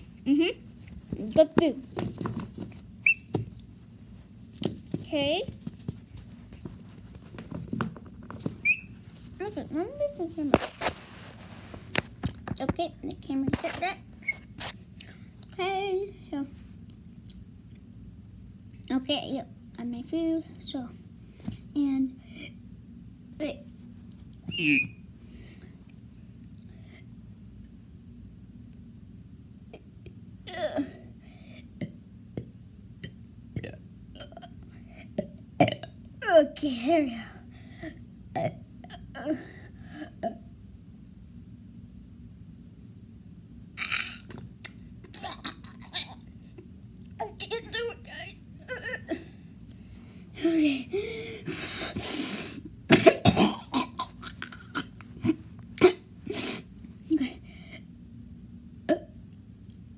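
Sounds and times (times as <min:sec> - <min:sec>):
person burping: 0:35.6 - 0:35.9, 0:58.9 - 0:59.2
person coughing: 0:52.9 - 0:54.9.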